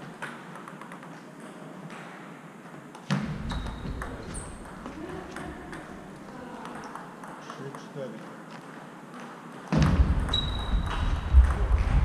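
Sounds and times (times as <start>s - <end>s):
table tennis balls clicking: 0.0s - 2.1s, 2.9s - 12.0s
loud thump with low rumble: 10.8s - 12.0s.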